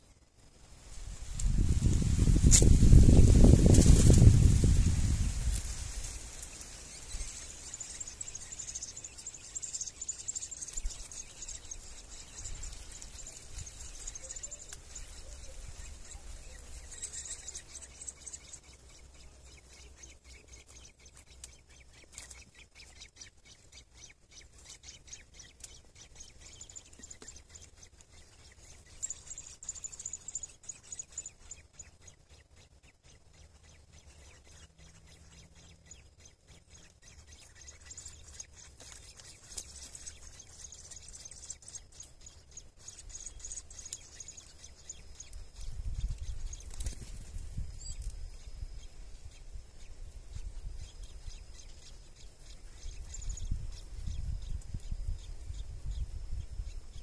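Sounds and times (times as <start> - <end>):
nestlings begging with high calls: 0.9 - 57.0
faint rustling clicks in nest: 1.3 - 2.8, 5.4 - 15.5, 20.4 - 32.0, 34.0 - 48.2.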